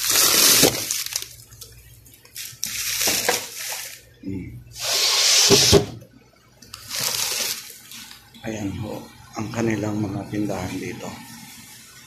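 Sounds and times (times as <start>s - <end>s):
plastic bag rustling: 0.0s - 4.2s, 6.7s - 8.2s.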